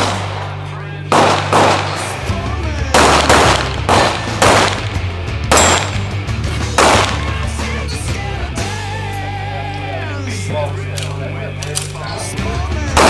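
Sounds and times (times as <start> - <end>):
pistol shots cracking: 0.0 - 6.1, 6.8 - 7.4.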